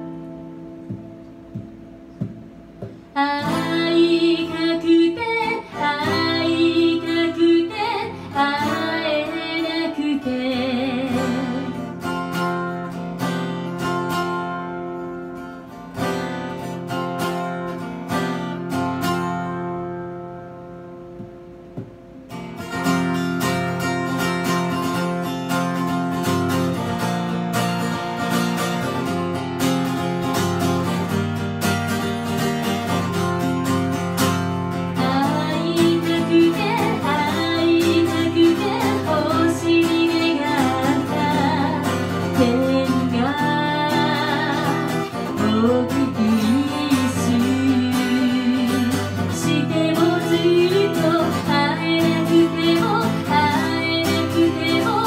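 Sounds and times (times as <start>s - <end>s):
acoustic guitar strumming: 0.0s - 55.0s
woman singing with vibrato: 3.1s - 12.1s, 34.9s - 55.0s.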